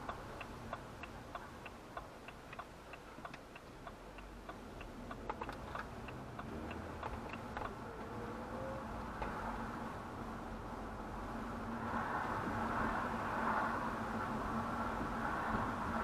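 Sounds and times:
car turn indicator ticking: 0:00.0 - 0:08.1
engine and road noise: 0:00.0 - 0:16.0.

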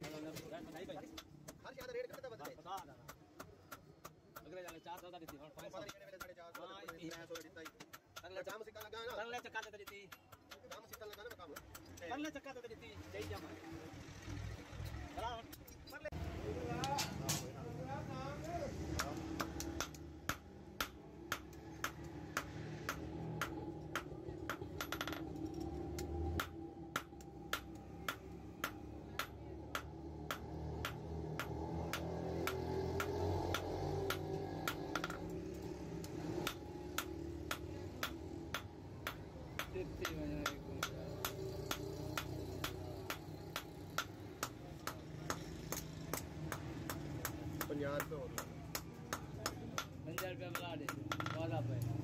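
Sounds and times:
hammer striking metal on anvil: 0:19.0 - 0:25.6.

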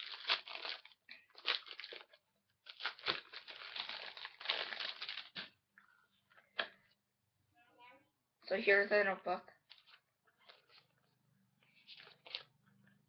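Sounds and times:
packaging crinkling: 0:00.0 - 0:05.5, 0:11.8 - 0:12.5.

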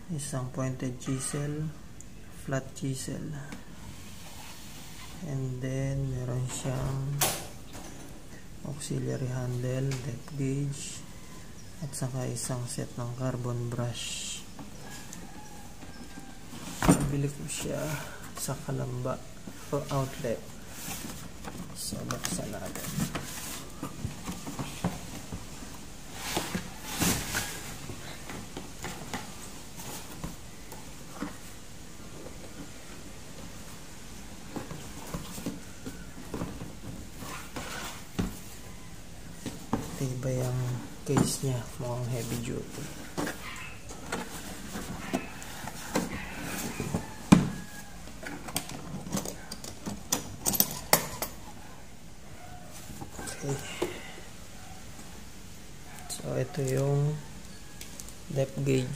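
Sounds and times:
metal latches snapping open: 0:48.3 - 0:51.4.

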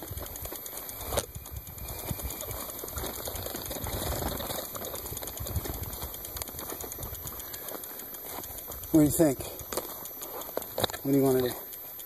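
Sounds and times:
bike rattling over bumps: 0:00.0 - 0:12.0.

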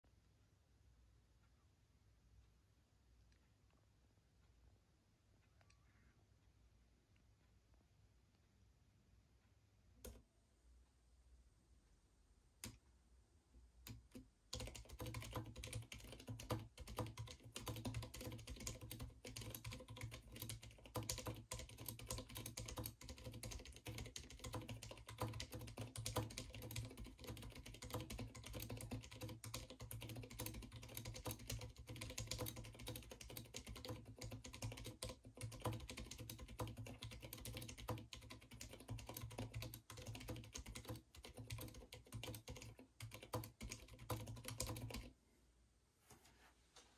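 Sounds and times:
soft keystrokes on keyboard: 0:13.8 - 0:45.1.

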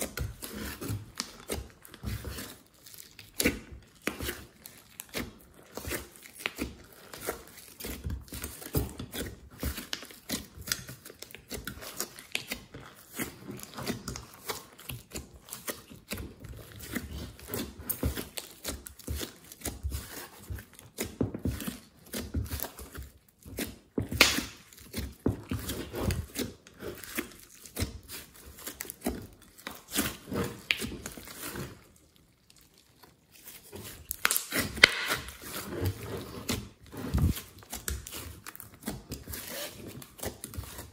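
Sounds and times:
slime crackling and popping: 0:00.0 - 0:20.4, 0:21.8 - 0:40.9
sticky slime squishing: 0:00.0 - 0:40.9.

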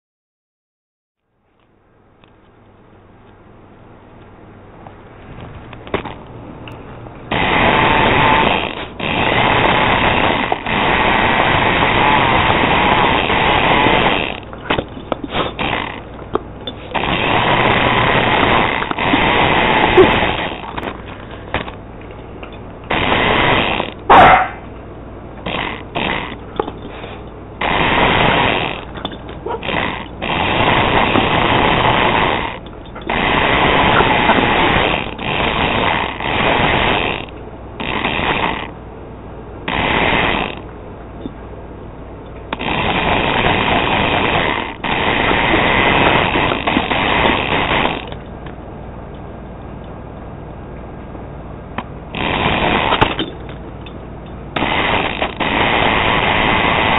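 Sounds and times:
toy truck motor whirring: 0:07.3 - 0:16.2, 0:16.8 - 0:21.0, 0:27.7 - 0:38.8.

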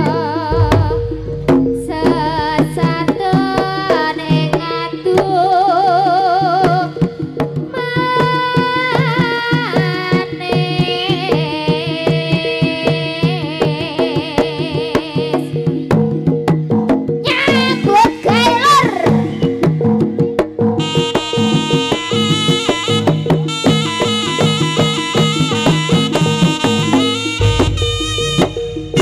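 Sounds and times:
wavering sliding melody: 0:00.0 - 0:05.1, 0:17.3 - 0:29.0
hand drums and percussion: 0:00.0 - 0:29.0
steady drone: 0:00.5 - 0:03.3, 0:27.3 - 0:29.0.

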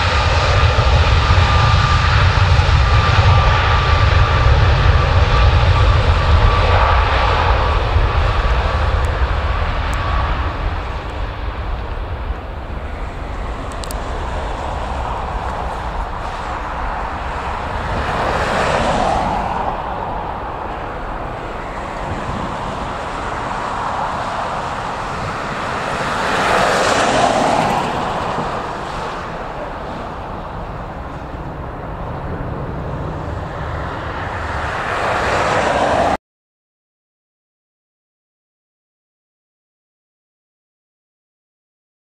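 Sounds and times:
jet engines roaring at takeoff: 0:00.0 - 0:36.2.

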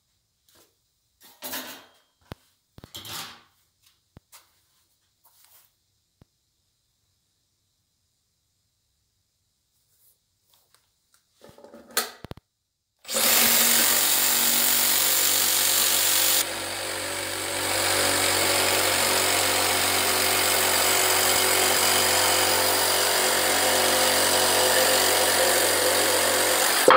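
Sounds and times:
reciprocating saw cutting wood: 0:13.1 - 0:26.9.

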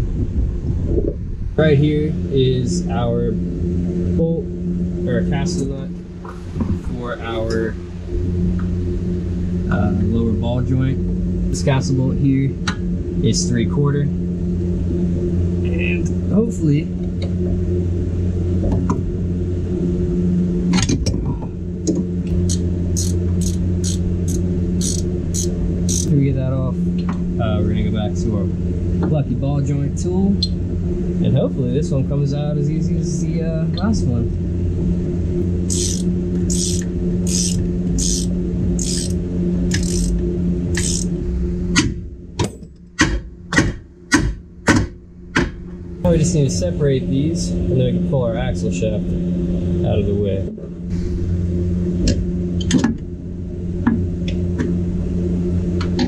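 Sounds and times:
low machine hum: 0:00.0 - 0:56.0
ratchet wrench clicking: 0:22.4 - 0:26.1, 0:35.6 - 0:41.1.

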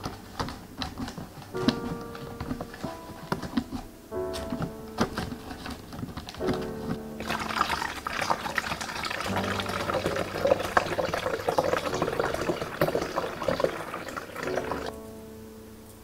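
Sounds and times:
water pouring into coffee maker: 0:07.2 - 0:14.9.

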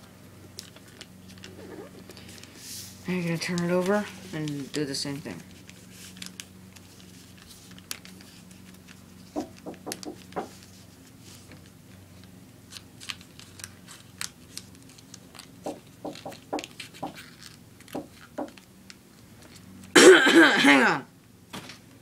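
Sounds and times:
paper being folded: 0:00.6 - 0:11.8, 0:12.7 - 0:18.7.

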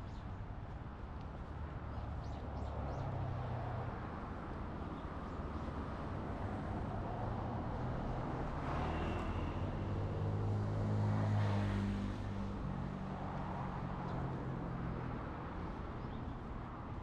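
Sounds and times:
road traffic noise: 0:00.0 - 0:17.0
vehicle engine hum passing: 0:04.9 - 0:16.4.

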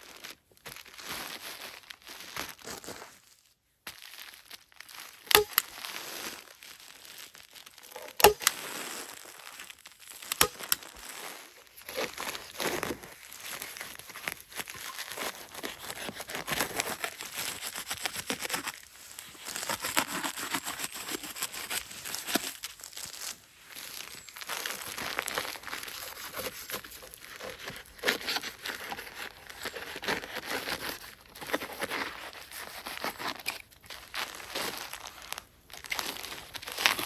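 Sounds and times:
foil insulation crinkling and tearing: 0:00.0 - 0:37.0
knife cutting foil sheet: 0:05.3 - 0:05.6, 0:07.8 - 0:08.8, 0:10.2 - 0:11.2, 0:19.4 - 0:22.5.

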